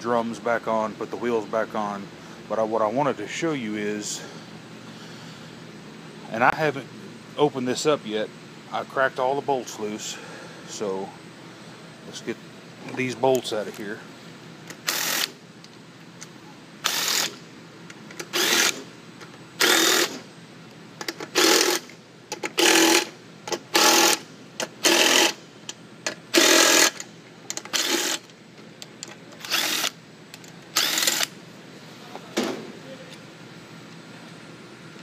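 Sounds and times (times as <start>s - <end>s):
power drill spinning out bolts: 14.7s - 15.4s, 16.8s - 17.4s, 18.1s - 18.9s, 19.6s - 20.2s, 21.0s - 25.4s, 26.3s - 28.3s, 29.4s - 31.4s.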